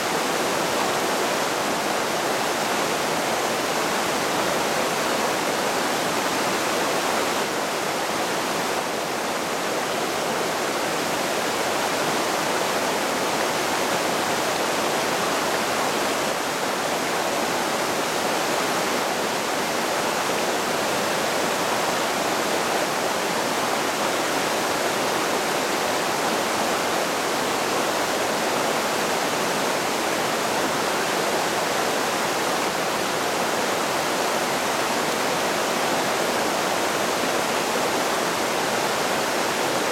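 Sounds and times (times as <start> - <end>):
creek rushing over boulders: 0.0 - 39.9.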